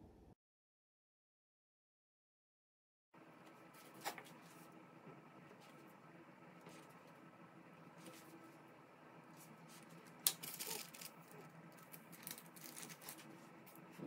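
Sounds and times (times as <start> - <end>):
parchment paper crinkling: 9.3 - 14.0.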